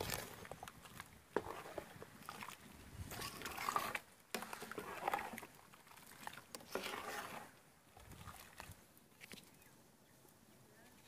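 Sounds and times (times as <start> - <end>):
liquid sloshing in pot: 0.0 - 8.8.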